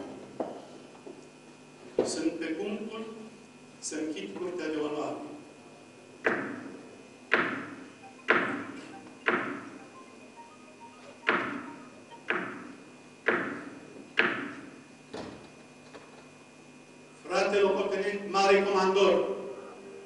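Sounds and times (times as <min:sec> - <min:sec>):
gavel knocking on wood: 0:06.2 - 0:06.7, 0:07.3 - 0:08.6, 0:09.2 - 0:09.7, 0:11.3 - 0:14.6.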